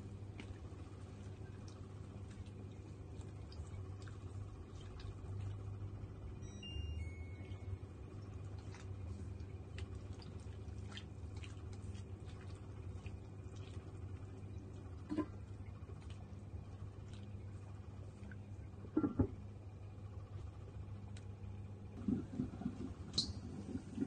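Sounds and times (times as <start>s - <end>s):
steady low hum: 0.0s - 24.0s
water boiling in wok: 0.1s - 6.5s, 22.0s - 24.0s.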